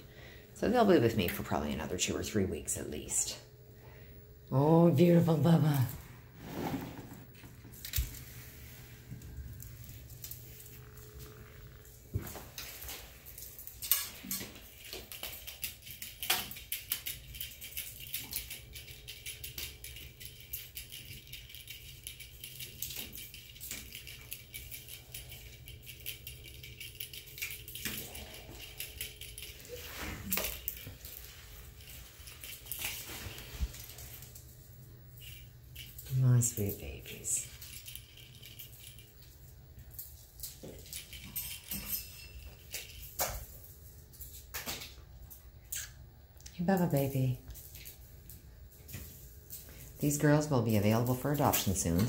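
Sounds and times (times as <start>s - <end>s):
kittens rustling and tapping: 7.1s - 45.6s.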